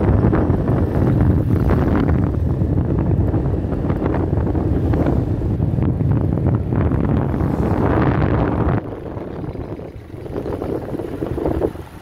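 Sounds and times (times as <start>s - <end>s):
strong wind buffeting microphone: 0.0s - 12.0s.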